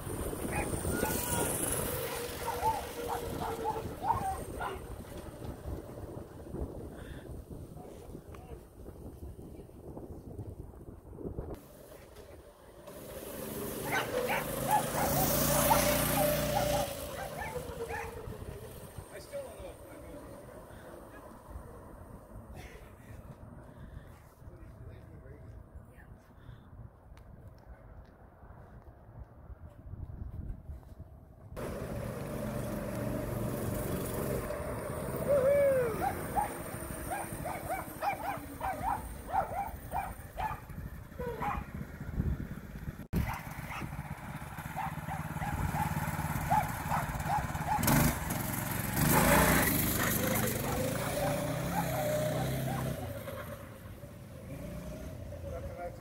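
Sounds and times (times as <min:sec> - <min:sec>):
go-kart engine drone: 0:00.0 - 0:07.5, 0:11.6 - 0:22.8, 0:31.6 - 0:56.0.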